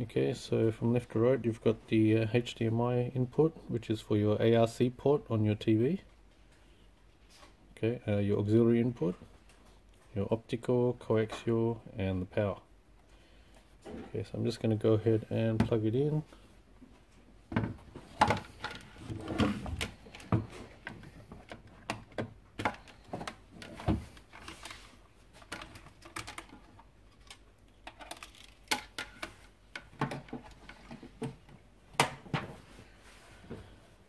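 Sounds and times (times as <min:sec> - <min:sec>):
plastic object shifted on a desk: 0:17.6 - 0:27.3.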